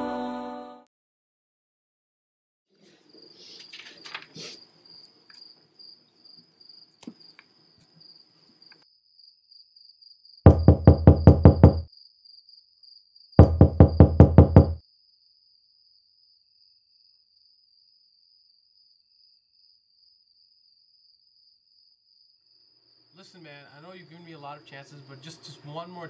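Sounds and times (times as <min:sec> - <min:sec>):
crickets chirring: 0:03.2 - 0:11.2, 0:14.8 - 0:26.0
rapid knocking on a door: 0:10.5 - 0:11.9, 0:13.4 - 0:14.8.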